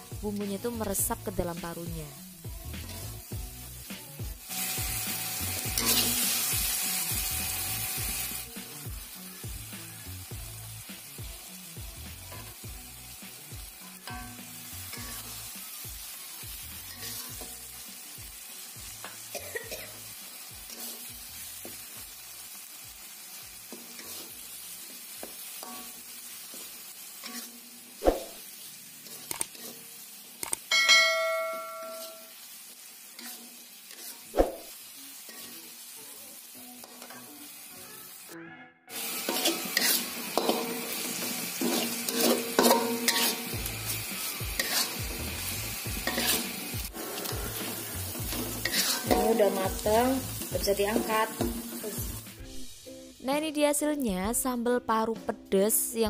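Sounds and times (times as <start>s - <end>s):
food sizzling: 0.0s - 56.0s
metal spatula scraping a wok: 5.6s - 6.5s, 14.0s - 15.4s, 16.8s - 17.7s, 20.6s - 21.1s, 23.6s - 24.5s, 25.5s - 30.1s, 33.1s - 34.7s, 35.3s - 35.8s, 38.9s - 52.0s
ringing bell-like chime: 30.7s - 32.3s.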